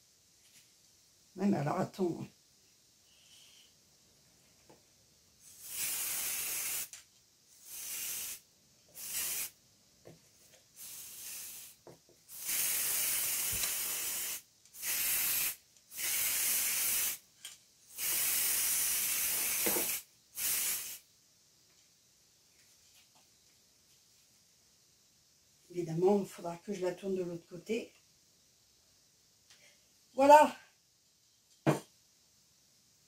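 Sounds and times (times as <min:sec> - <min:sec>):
spray paint can hissing: 0:05.4 - 0:09.6, 0:10.8 - 0:17.2, 0:17.9 - 0:21.0.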